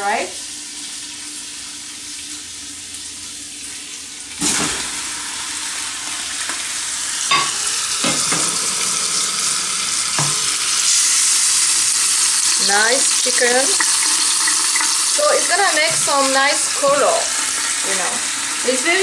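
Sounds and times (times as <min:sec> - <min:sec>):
chicken sizzling in oil: 0:00.0 - 0:19.0.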